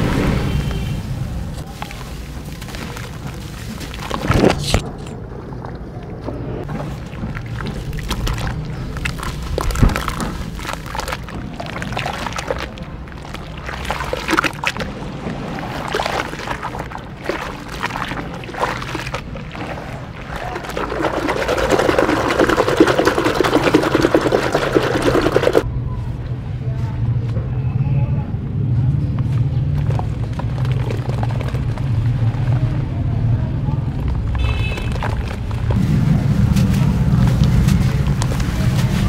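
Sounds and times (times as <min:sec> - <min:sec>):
water splashing and sloshing: 0:00.0 - 0:25.7, 0:29.6 - 0:32.9, 0:33.8 - 0:39.0
frothy crackle of foam: 0:01.5 - 0:05.2, 0:06.7 - 0:25.6, 0:29.8 - 0:32.9, 0:33.8 - 0:39.0
hands squelching wet sand: 0:01.6 - 0:05.1, 0:06.7 - 0:25.6, 0:34.0 - 0:39.0.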